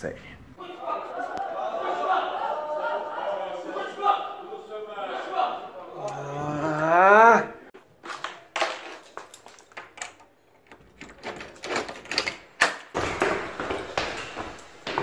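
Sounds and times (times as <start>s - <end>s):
footsteps going down hard stairs: 11.1s - 15.0s.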